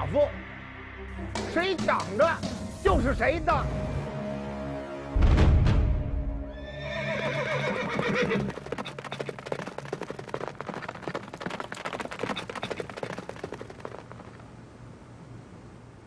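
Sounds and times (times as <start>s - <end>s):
horse whinnying: 6.5s - 9.4s
galloping hoofbeats: 7.2s - 14.5s.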